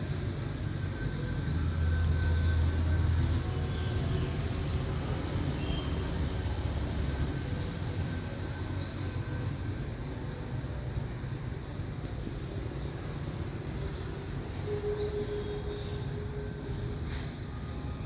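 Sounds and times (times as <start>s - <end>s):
high-pitched whine: 0.0s - 18.0s.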